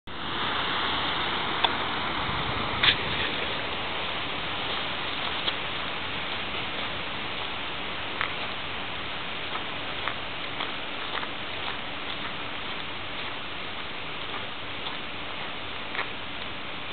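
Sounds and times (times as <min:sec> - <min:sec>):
steady outdoor hiss: 0:00.0 - 0:16.9.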